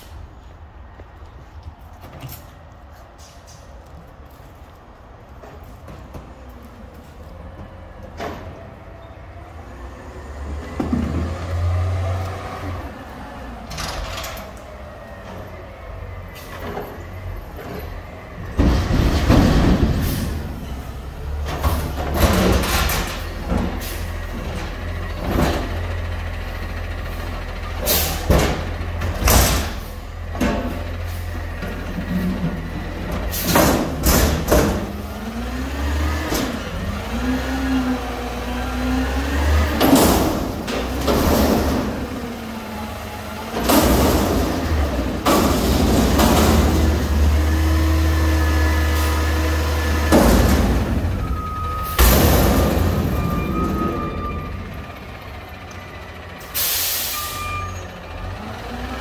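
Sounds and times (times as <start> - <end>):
garbage truck diesel engine: 0.0 - 59.0
metal clanks of dumpster: 16.3 - 26.1, 27.6 - 35.0, 39.5 - 42.3, 43.4 - 47.8, 49.5 - 55.0.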